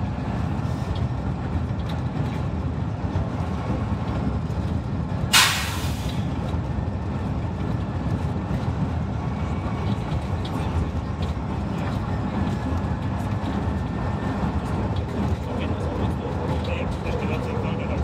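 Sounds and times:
locomotive engine rumble: 0.0 - 18.0
compressed air hiss: 5.4 - 6.2.

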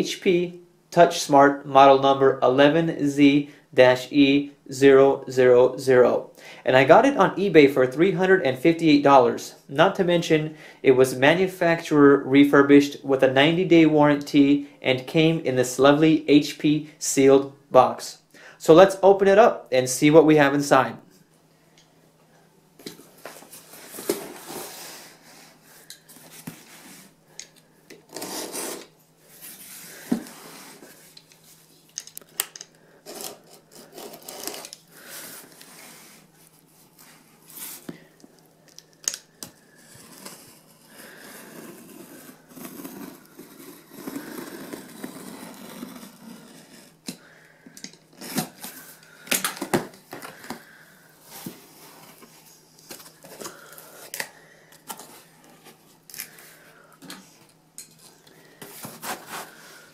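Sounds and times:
tape ripping: 33.1 - 34.8.

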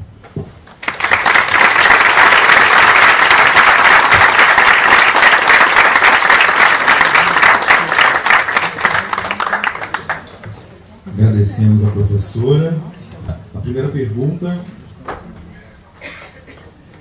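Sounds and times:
audience applauding: 0.8 - 10.6.

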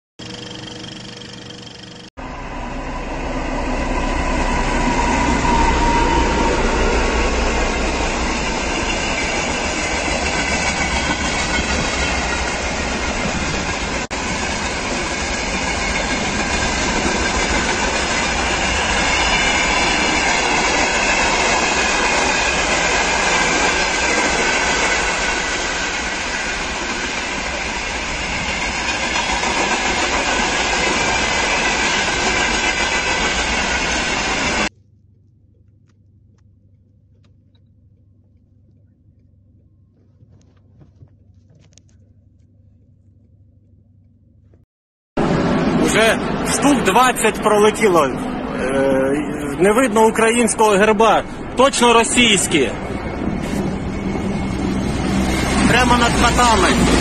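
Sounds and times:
wheel squeal: 0.2 - 34.7
freight train rumbling past: 1.9 - 34.7, 45.2 - 57.0.

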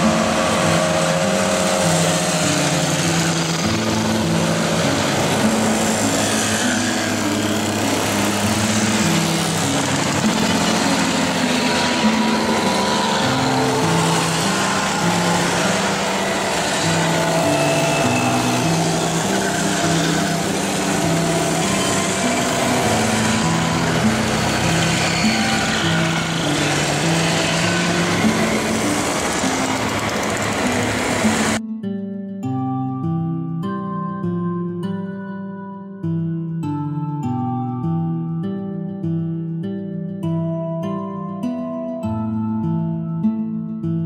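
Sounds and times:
mopeds riding past: 0.0 - 31.6.

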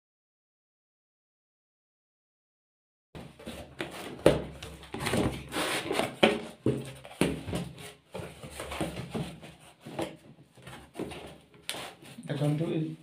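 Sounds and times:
cardboard and plastic rustling: 3.2 - 12.8.

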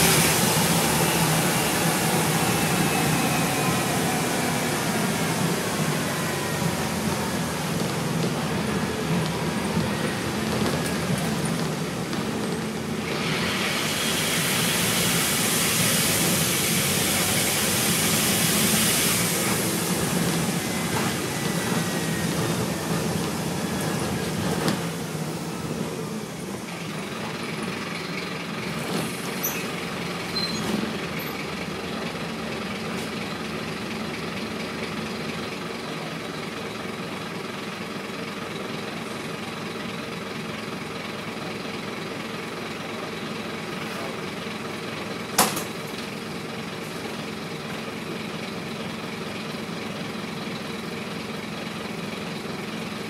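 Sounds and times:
loud hiss: 0.0 - 7.0, 13.0 - 23.6
bus engine drone: 0.0 - 53.0.

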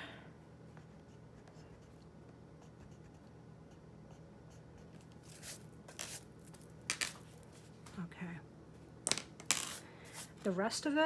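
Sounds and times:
pencil scratching on paper: 0.8 - 2.0, 2.6 - 6.2.

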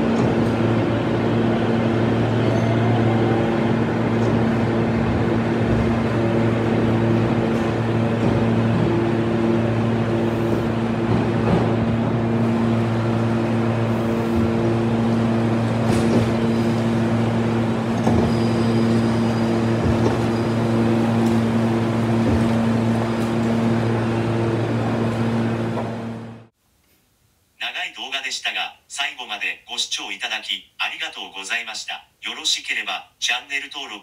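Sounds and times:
electric train humming: 0.0 - 26.5
station noise: 0.0 - 26.5.

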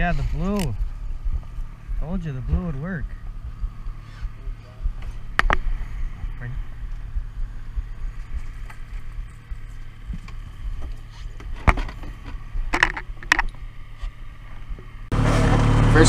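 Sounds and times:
boat motor humming: 0.0 - 16.0.

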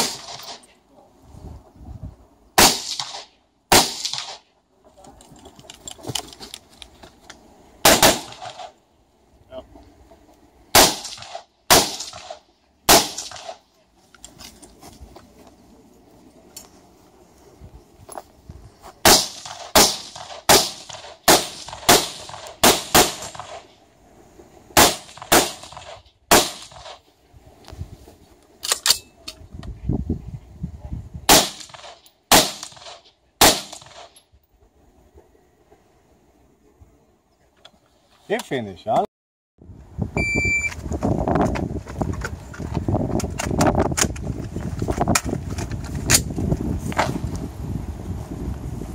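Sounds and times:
rifle shots: 0.0 - 0.6, 2.6 - 4.4, 7.8 - 8.8, 10.7 - 13.6, 19.0 - 23.7, 24.8 - 27.0, 31.3 - 34.1.

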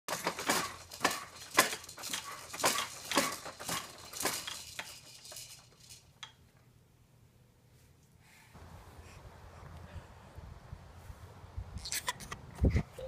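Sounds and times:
plastic baby jumper rattling: 0.1 - 6.4.

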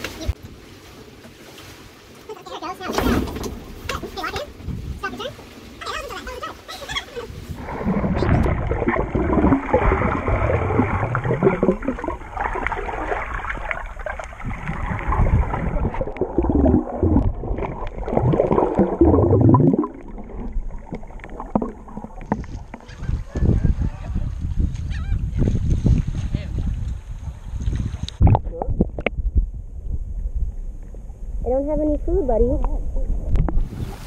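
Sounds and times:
muffled underwater gurgling: 7.6 - 24.3.

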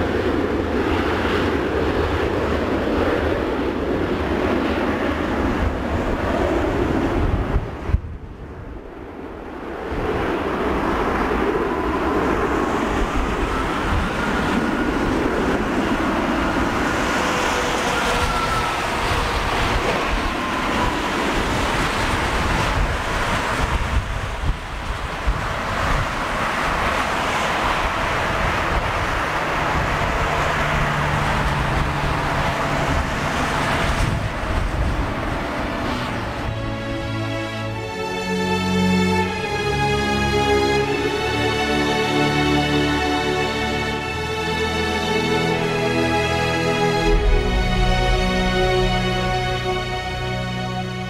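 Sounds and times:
jet engines roaring: 0.0 - 51.0
low hum: 42.4 - 51.0.

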